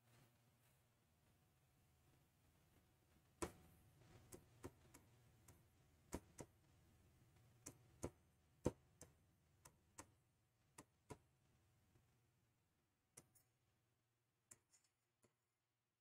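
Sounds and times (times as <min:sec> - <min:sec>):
marker pen tapping on board: 0:04.2 - 0:05.1, 0:06.1 - 0:06.6, 0:07.7 - 0:11.3.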